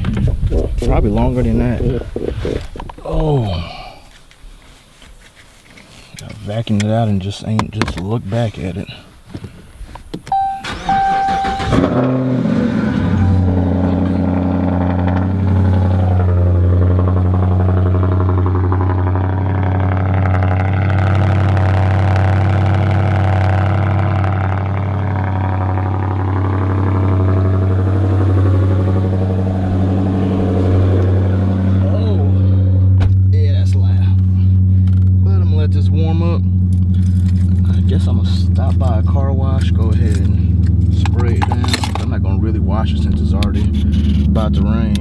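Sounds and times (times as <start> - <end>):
car engine starting and idling: 10.2 - 45.0
short chime tones: 10.3 - 12.0, 13.0 - 13.9.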